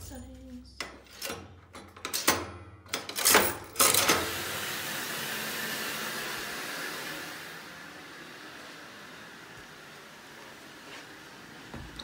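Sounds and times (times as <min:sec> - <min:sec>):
coin slide metallic clunks: 0:00.8 - 0:04.3
washing machine rushing hiss: 0:03.9 - 0:12.0.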